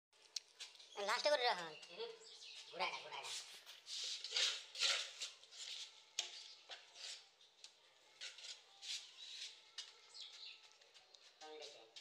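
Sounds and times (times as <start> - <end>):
trowel scraping mortar: 3.3 - 7.4, 8.1 - 10.1.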